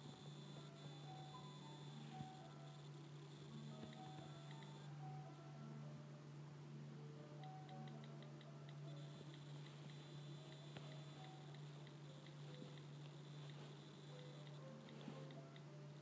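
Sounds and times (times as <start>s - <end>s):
faint rapid ticks: 0.0s - 4.9s, 7.4s - 16.0s
faint high whine: 0.0s - 16.0s.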